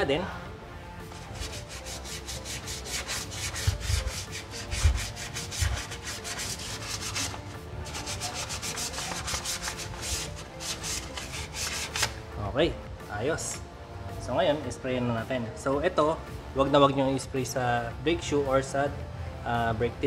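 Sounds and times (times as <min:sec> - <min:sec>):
sandpaper scraping brake lining: 0:01.1 - 0:12.2.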